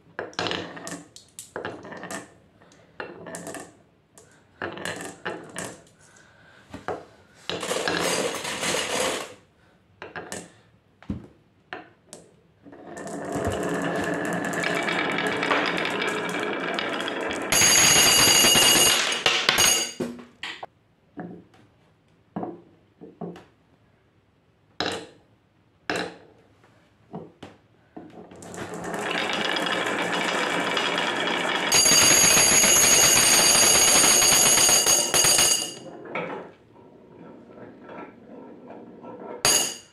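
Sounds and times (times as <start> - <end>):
marbles rolling on wooden track: 0.2 - 2.3, 3.0 - 3.8, 4.6 - 5.9, 7.5 - 9.4, 12.6 - 20.0, 28.2 - 39.9
marbles rattling in glass jar: 13.0 - 19.3, 28.4 - 35.2.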